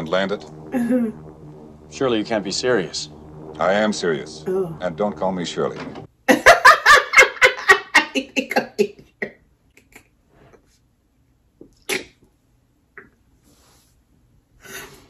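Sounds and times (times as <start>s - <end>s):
woman laughing: 6.3s - 8.9s.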